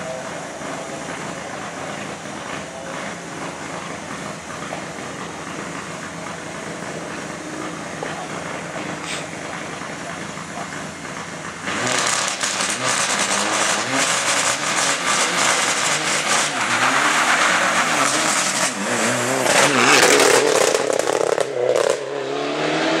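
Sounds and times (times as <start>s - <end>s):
rally car engine revving: 0.0s - 23.0s.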